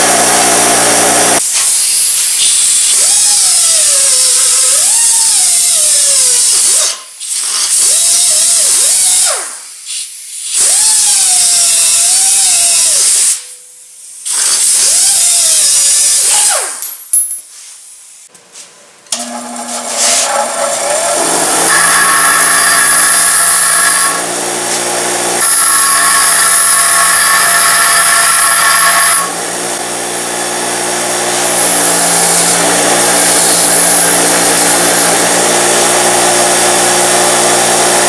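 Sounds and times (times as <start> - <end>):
bench grinder running: 0.0 - 1.4, 19.1 - 38.0
cut-off wheel cutting steel rod: 19.1 - 38.0.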